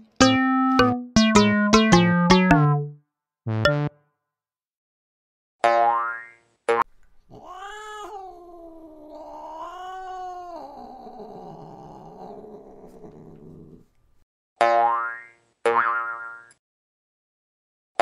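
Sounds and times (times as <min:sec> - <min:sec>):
cat yowling: 0:07.3 - 0:13.5.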